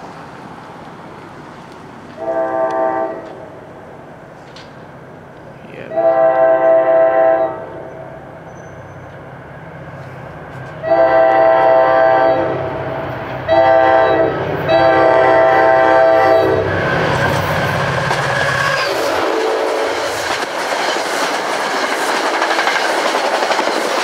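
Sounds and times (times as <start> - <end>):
train rumble: 0.0 - 24.0
train air horn blasts: 2.2 - 3.6, 5.9 - 8.1, 10.8 - 12.8, 13.4 - 16.8, 18.7 - 20.0.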